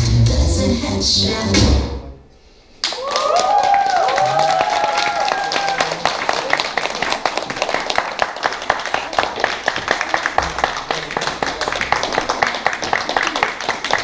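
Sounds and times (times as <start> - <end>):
audience clapping: 2.8 - 14.0
cheering whoops: 2.9 - 6.0.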